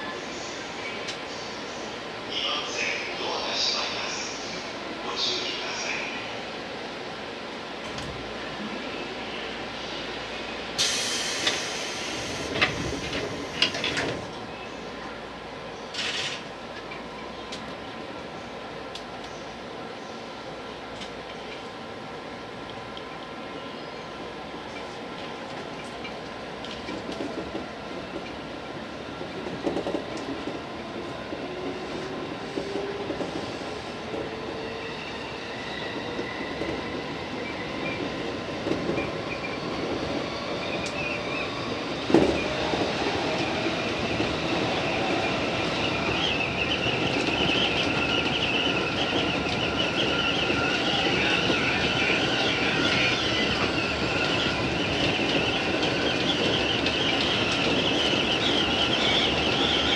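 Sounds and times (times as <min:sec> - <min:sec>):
electric train rumbling on rails: 0:00.0 - 0:59.9.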